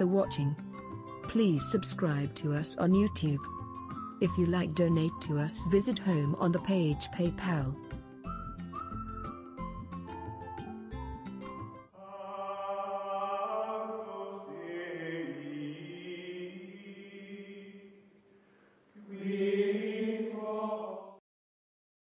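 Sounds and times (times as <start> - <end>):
choir-like chant of held chords: 12.0 - 18.0, 19.0 - 21.2.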